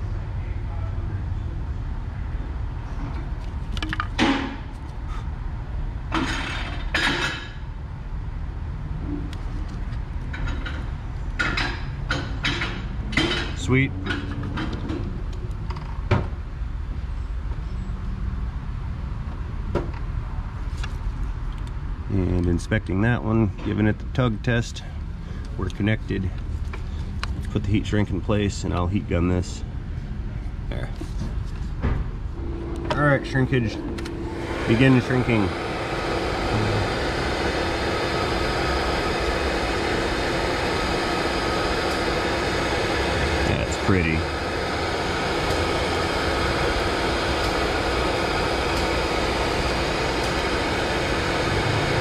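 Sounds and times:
workshop low hum: 0:19.2 - 0:52.0
heat gun blowing air: 0:34.0 - 0:52.0.

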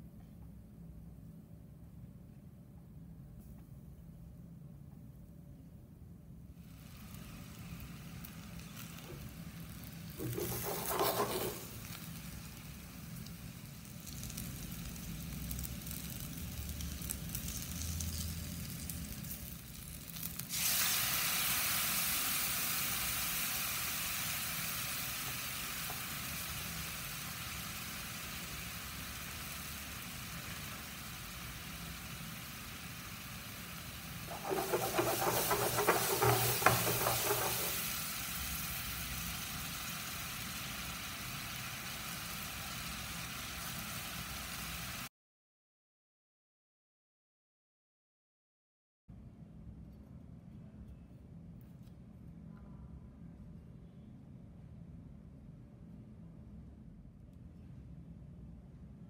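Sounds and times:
fish sizzling in oil: 0:06.6 - 0:45.1
sauce sizzling in hot pan: 0:06.6 - 0:45.1.

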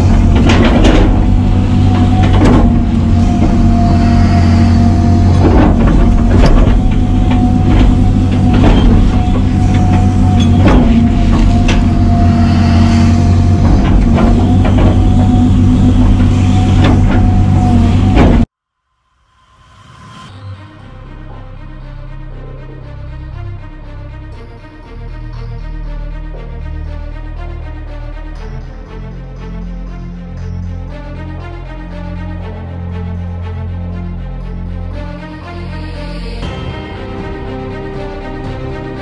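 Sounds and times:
bucket clunking and scraping: 0:00.0 - 0:04.0, 0:04.9 - 0:18.5
excavator diesel engine: 0:00.0 - 0:18.5
hydraulic whine: 0:00.0 - 0:18.5.

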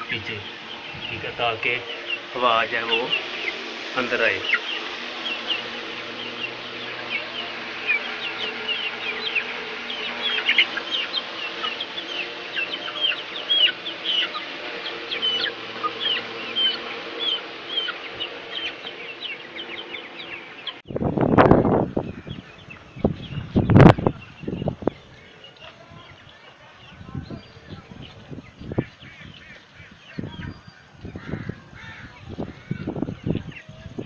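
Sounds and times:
loud rush of noise: 0:00.0 - 0:22.0
chickens clucking: 0:00.0 - 0:34.0
chicks peeping: 0:00.0 - 0:34.0.

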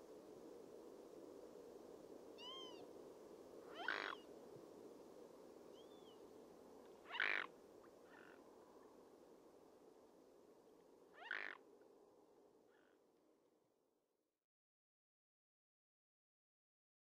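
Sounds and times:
low background noise: 0:00.0 - 0:14.3
harsh animal calls: 0:07.1 - 0:07.5, 0:11.2 - 0:11.6.

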